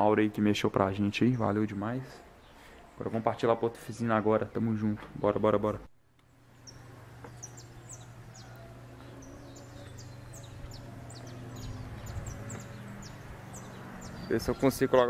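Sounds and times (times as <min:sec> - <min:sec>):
small birds chirping: 0:00.0 - 0:15.0
low hum: 0:06.0 - 0:14.3.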